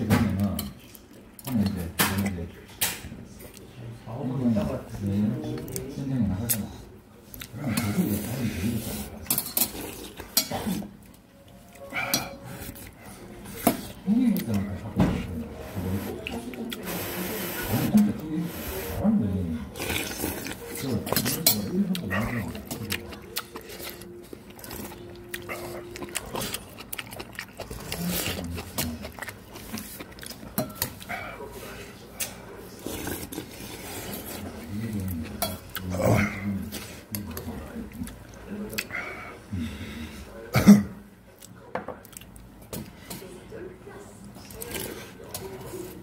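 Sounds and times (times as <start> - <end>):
cutlery clinking on dishes: 9.2 - 10.8, 11.9 - 12.8, 21.0 - 21.8, 30.5 - 31.0
mouth noises of eating: 15.6 - 40.3.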